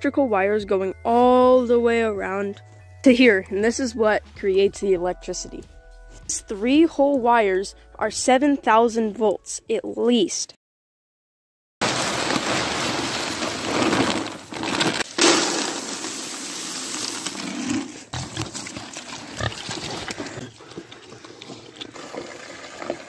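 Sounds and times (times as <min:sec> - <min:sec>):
pigs grunting and snuffling: 0:18.2 - 0:23.0
pig chewing clicks: 0:19.4 - 0:22.9.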